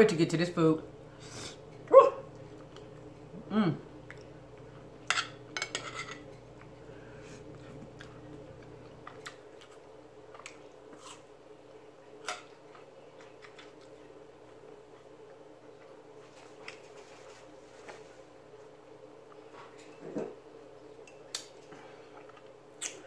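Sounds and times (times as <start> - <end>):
cutlery clinking on dishes: 5.1 - 6.4.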